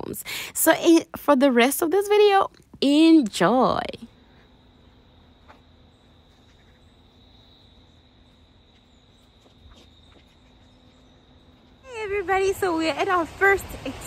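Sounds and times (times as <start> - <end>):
quiet outdoor background noise: 0.0 - 14.0
insect trill: 3.1 - 13.6.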